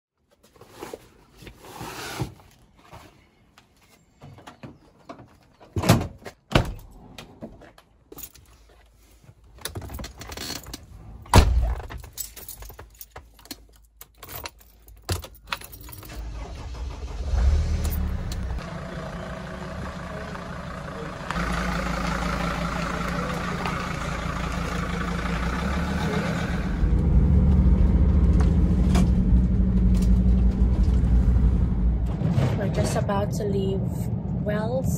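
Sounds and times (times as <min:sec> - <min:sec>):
keys jangling: 0:12.0 - 0:16.2
vehicle engine starting and idling: 0:15.8 - 0:32.8.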